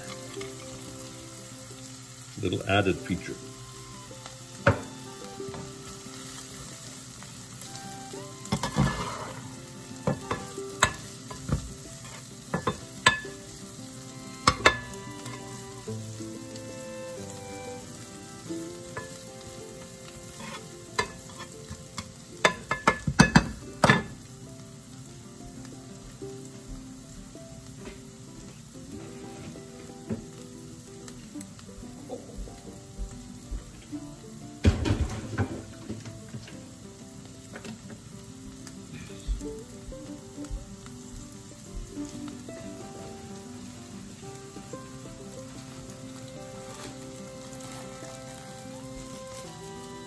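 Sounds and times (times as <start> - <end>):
food sizzling in frying pan: 0.0 - 50.0
spatula clacking against pan: 10.1 - 13.4, 20.4 - 24.1.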